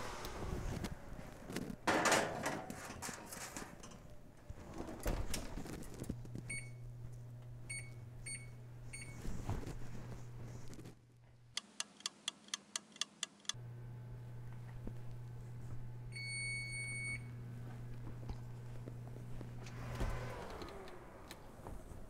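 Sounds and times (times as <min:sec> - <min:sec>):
oven door thump and creak: 0:01.8 - 0:05.9
oven control beeping: 0:06.4 - 0:07.0, 0:07.6 - 0:09.2, 0:16.1 - 0:17.4
low hum: 0:13.6 - 0:22.0.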